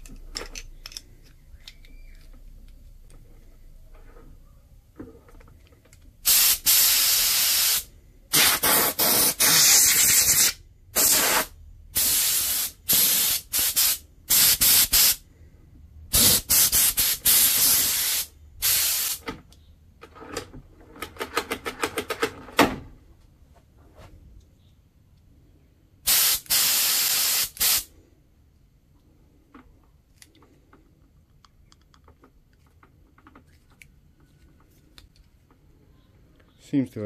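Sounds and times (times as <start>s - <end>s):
air blow gun hissing bursts: 6.3s - 15.2s, 16.1s - 19.2s, 26.1s - 27.9s.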